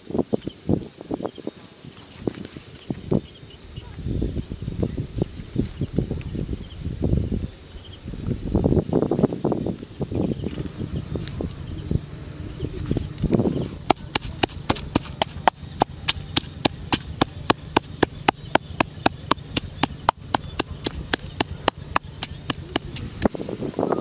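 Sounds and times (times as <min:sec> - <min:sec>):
pestle pounding in mortar: 0:13.8 - 0:23.2.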